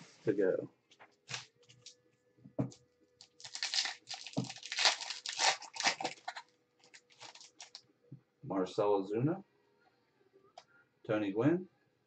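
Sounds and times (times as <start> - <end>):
foil wrapper tearing and crinkling: 1.3 - 1.9, 3.2 - 7.8.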